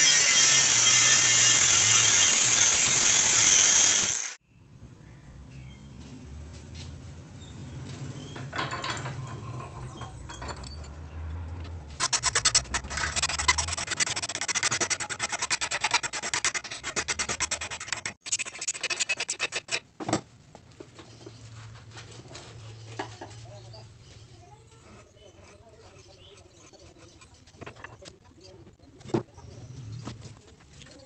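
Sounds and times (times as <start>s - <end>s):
hand file rasping on metal: 0.0s - 4.3s, 12.0s - 19.8s, 24.7s - 28.1s.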